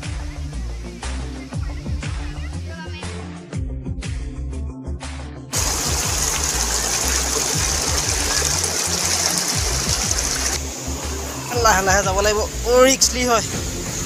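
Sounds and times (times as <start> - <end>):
background music with bass: 0.0 - 14.0
stream rushing over rocks: 5.6 - 13.8.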